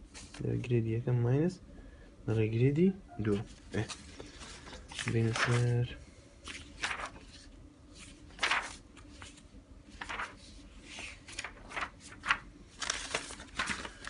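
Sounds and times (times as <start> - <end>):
paper rustling: 3.3 - 14.0.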